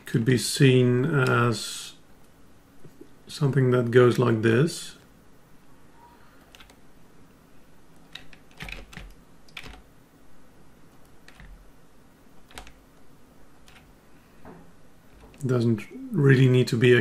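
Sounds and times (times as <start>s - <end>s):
computer mouse clicking: 6.4s - 6.8s, 8.0s - 9.8s, 10.9s - 11.6s, 12.4s - 12.8s, 13.6s - 13.9s.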